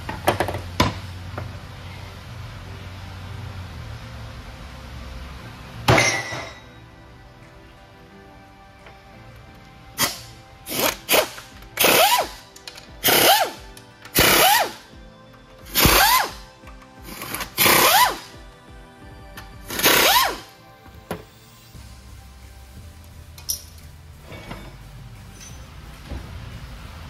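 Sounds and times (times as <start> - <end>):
power tool trigger bursts: 10.0 - 12.4, 13.0 - 14.8, 15.7 - 16.4.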